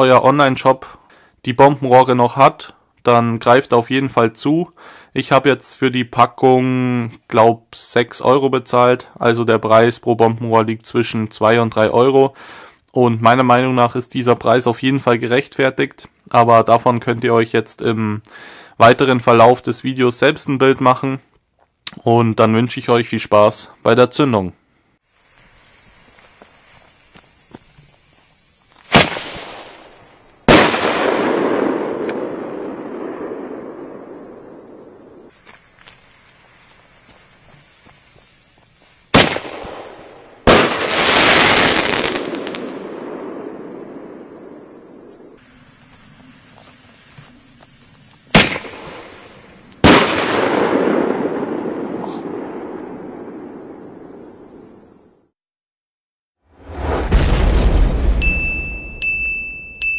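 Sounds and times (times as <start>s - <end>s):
crickets chirping: 0.0s - 7.0s, 8.2s - 21.2s, 22.1s - 55.4s, 58.1s - 59.9s
firework launch bang: 28.8s - 35.3s, 39.1s - 44.6s, 48.3s - 53.4s, 56.6s - 58.9s
firework shell burst: 28.8s - 35.4s, 39.1s - 45.3s, 48.3s - 53.0s.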